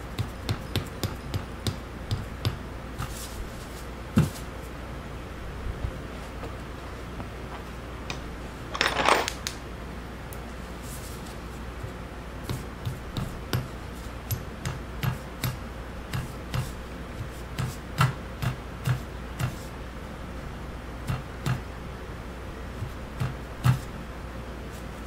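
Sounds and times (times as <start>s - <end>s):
rustling clatter of handling: 7.2s - 9.5s.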